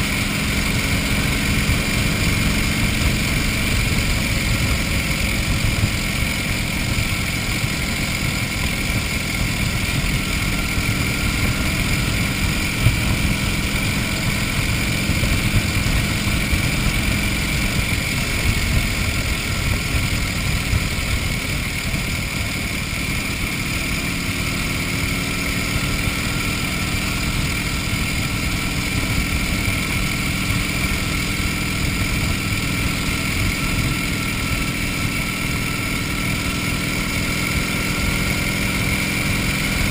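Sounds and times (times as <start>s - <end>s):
motorcycle engine cruising: 0.0s - 39.9s.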